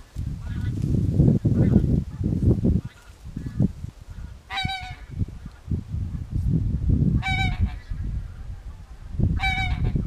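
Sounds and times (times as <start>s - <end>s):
goose honking: 4.5s - 5.1s, 7.2s - 7.9s, 9.4s - 10.0s.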